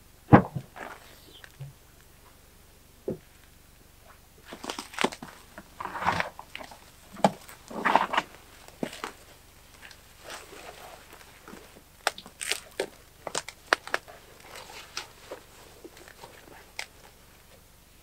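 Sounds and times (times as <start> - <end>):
bags rustling and clunking: 4.4 - 17.4.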